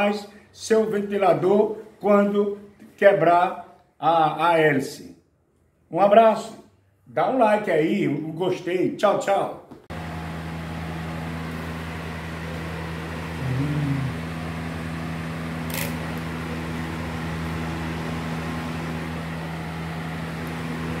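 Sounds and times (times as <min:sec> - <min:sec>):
desk fan motor humming: 0:09.9 - 0:21.0
low tone: 0:13.3 - 0:14.4.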